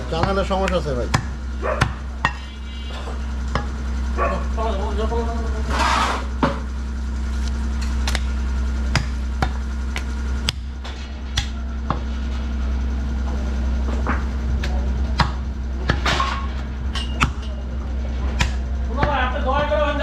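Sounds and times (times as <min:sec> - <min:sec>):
low hum: 0:00.0 - 0:20.0
cleaver chopping through bone: 0:18.3 - 0:19.2.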